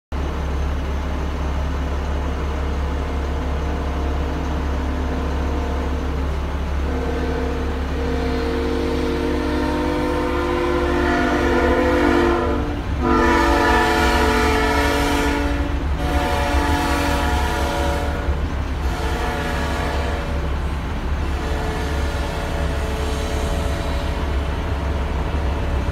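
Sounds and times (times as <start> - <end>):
locomotive air horn blasts: 6.8 - 25.2
steady low rumble: 12.5 - 25.9.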